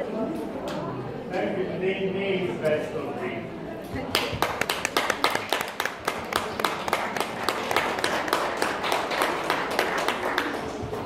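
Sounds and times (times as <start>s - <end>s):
audience clapping: 4.1s - 11.0s.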